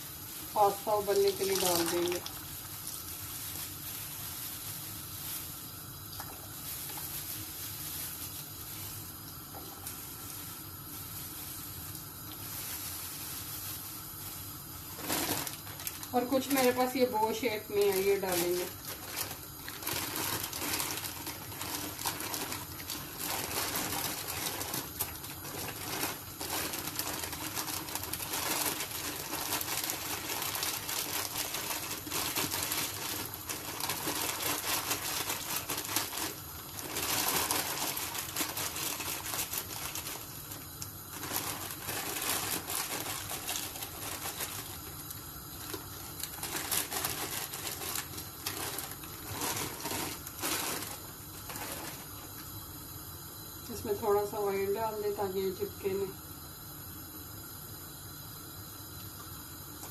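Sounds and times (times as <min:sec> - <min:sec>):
water boiling: 0:00.0 - 0:59.9
plastic bag crinkling: 0:00.2 - 0:52.4
dry pasta rattling into water: 0:14.9 - 0:52.3.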